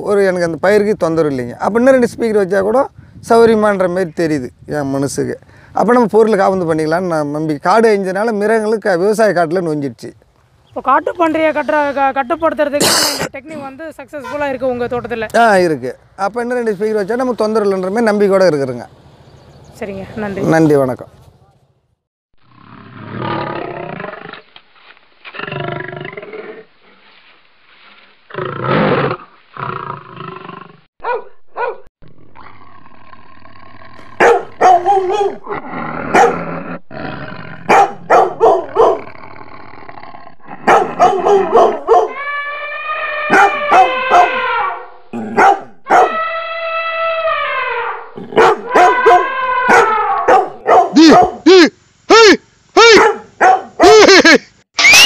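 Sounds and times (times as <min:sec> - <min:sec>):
big cat roaring: 0:22.5 - 0:24.4, 0:32.0 - 0:45.5, 0:47.7 - 0:50.4
dogs barking: 0:31.0 - 0:31.9, 0:34.2 - 0:36.6, 0:37.6 - 0:39.1, 0:40.6 - 0:42.2, 0:43.3 - 0:46.2, 0:48.2 - 0:51.4, 0:52.8 - 0:54.1
dogs howling: 0:34.2 - 0:36.5, 0:40.6 - 0:51.4.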